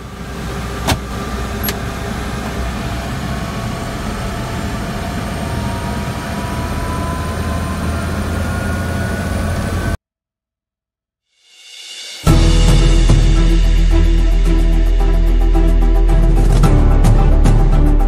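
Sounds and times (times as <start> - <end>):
helicopter engine and rotor rumble: 0.0 - 10.0
faint rising tone: 3.4 - 10.0.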